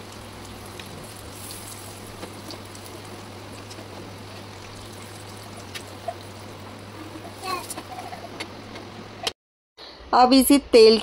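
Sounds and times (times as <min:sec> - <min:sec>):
prawns sizzling in hot oil: 0:00.0 - 0:08.3.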